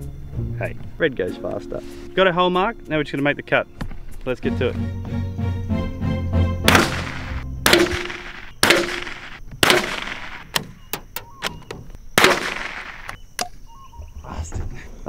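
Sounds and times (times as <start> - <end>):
rifle shots: 6.7 - 11.4, 12.1 - 13.2.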